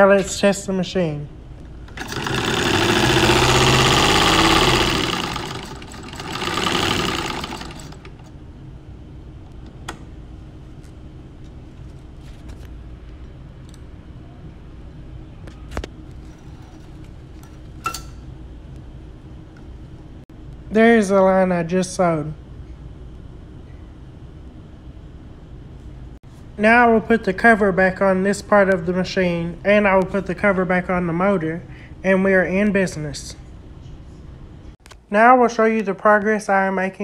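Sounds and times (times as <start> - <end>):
low steady hum: 0.0 - 6.6, 7.2 - 37.0
sewing machine stitching: 1.9 - 8.3.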